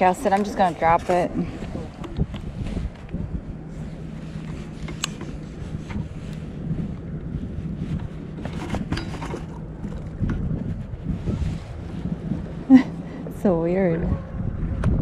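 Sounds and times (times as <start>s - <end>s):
steady low hum: 0.0s - 15.0s
wind buffeting microphone: 0.0s - 15.0s.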